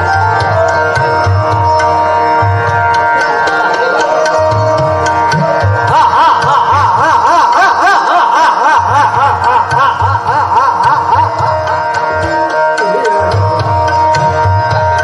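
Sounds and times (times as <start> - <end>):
harmonium drone: 0.0 - 15.0
tabla strokes: 0.0 - 15.0.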